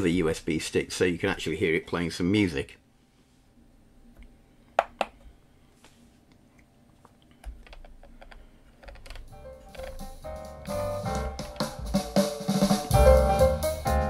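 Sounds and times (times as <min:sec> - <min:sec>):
music from radio speaker: 0:09.3 - 0:14.0.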